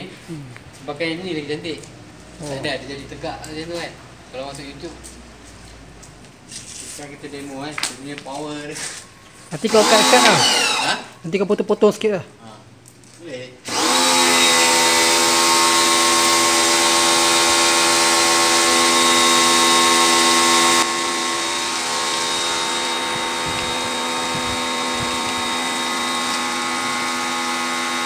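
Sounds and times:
pressure washer motor whine: 9.6 - 11.2, 13.7 - 28.0
water jet hissing: 19.3 - 27.7.

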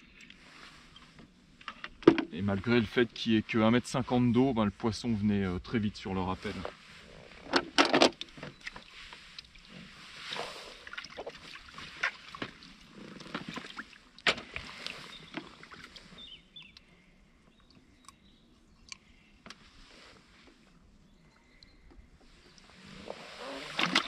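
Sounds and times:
water splashing at the bank: 10.3 - 16.1, 22.6 - 24.0.

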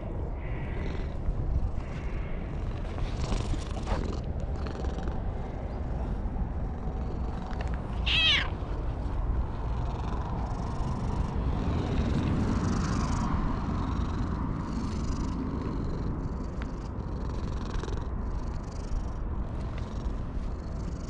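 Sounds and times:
cat purring: 0.0 - 21.0
cat meowing: 7.9 - 8.6.

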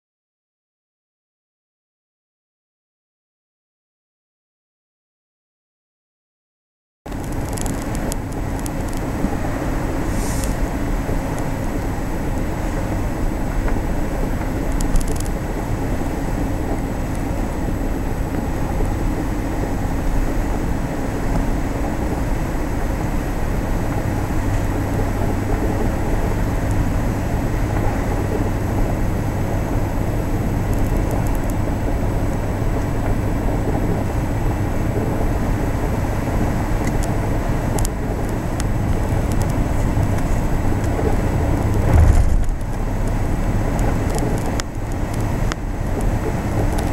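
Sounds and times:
car engine and tyre noise: 7.1 - 46.9
low hum: 38.7 - 44.5.

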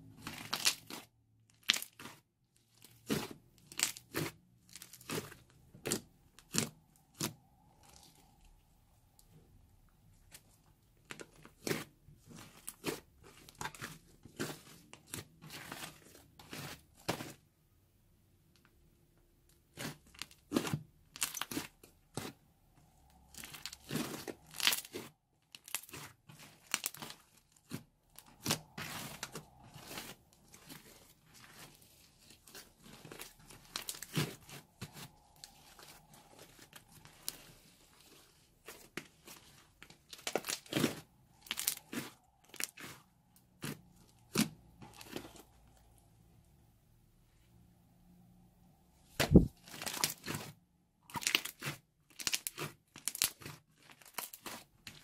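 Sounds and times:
slime crackling and popping: 0.2 - 2.2, 2.8 - 8.3, 19.7 - 22.4, 23.2 - 45.4, 49.2 - 55.0.

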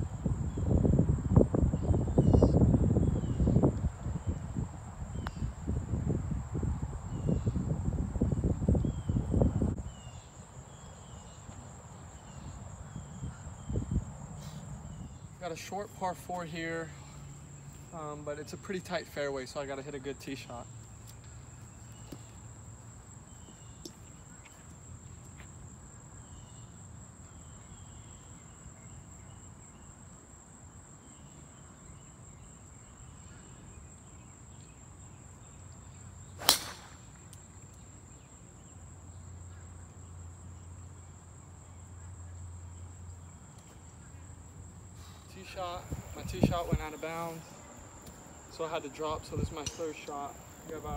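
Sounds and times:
golf ball struck off tee: 36.4 - 37.1.

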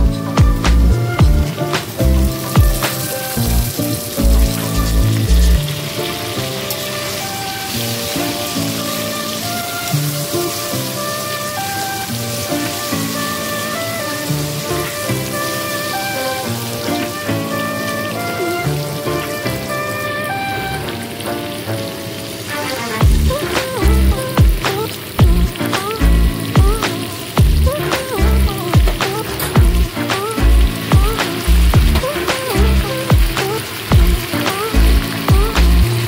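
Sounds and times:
background music with heavy beat: 0.0 - 5.7, 22.9 - 36.0
food sizzling in a wok: 0.0 - 36.0.

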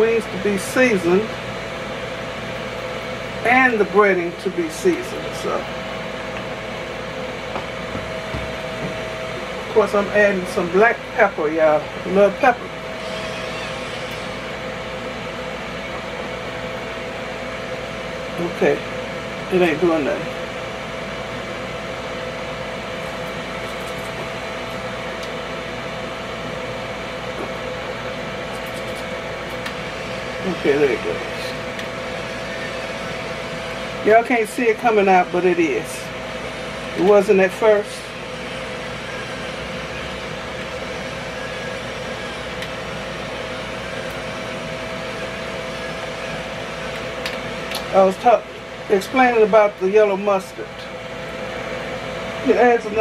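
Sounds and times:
electric fan hum: 0.0 - 53.0
electric pepper mill motor whirring: 12.8 - 14.6.

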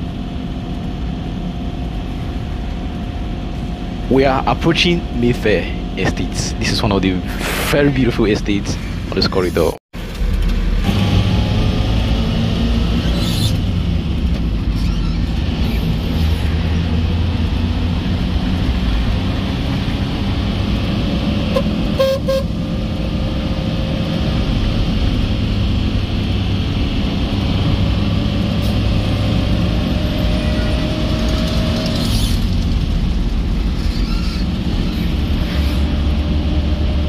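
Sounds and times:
car road and engine noise: 0.0 - 37.0
car horn toots: 21.5 - 22.5.

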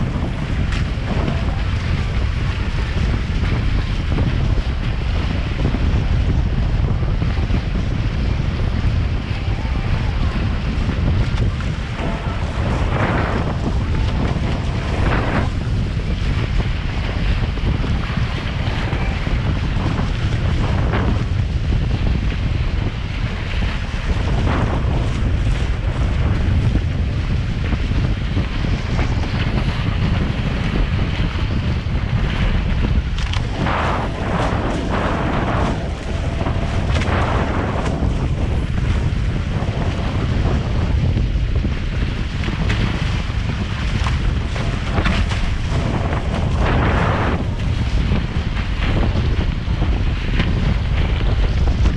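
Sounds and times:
water rushing past hull: 0.0 - 51.9
wind buffeting microphone: 0.0 - 51.9
water splashing: 9.0 - 21.2, 32.9 - 49.2.

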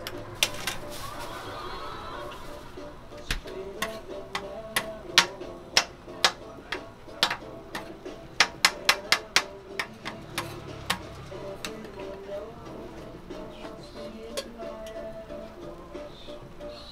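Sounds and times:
metal spatula clanking on griddle: 3.4 - 12.2, 14.2 - 15.0.

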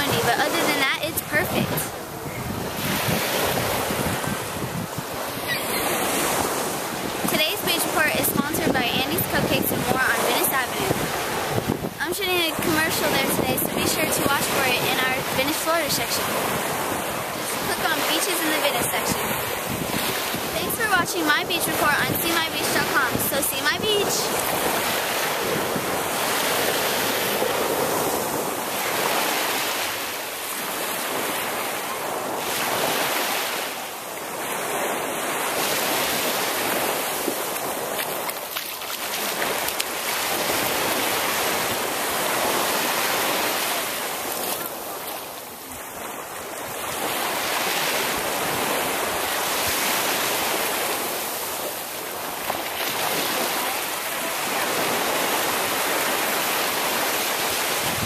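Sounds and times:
small waves breaking on shore: 0.0 - 58.0
wind on microphone: 0.0 - 58.0.

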